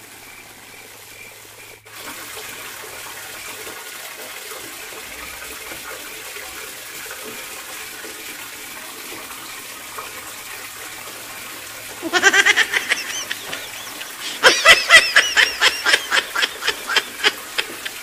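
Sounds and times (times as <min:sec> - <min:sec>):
tap water running: 0:00.0 - 0:18.0
person laughing: 0:12.0 - 0:18.0.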